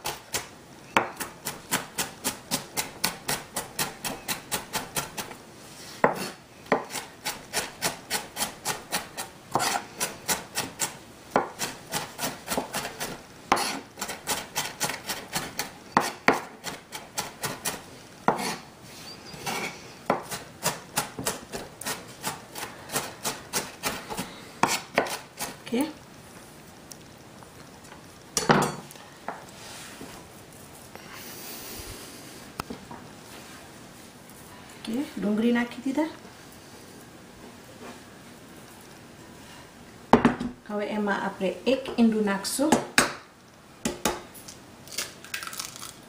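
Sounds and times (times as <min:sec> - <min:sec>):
knife chopping on cutting board: 0:06.0 - 0:18.6, 0:19.5 - 0:25.6.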